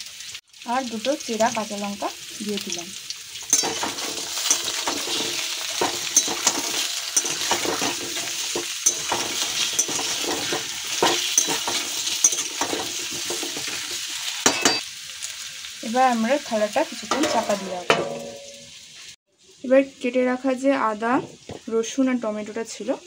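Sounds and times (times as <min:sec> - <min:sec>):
vegetables sizzling in oil: 0:00.0 - 0:23.0
metal spatula scraping pan: 0:03.5 - 0:14.8, 0:16.9 - 0:18.7.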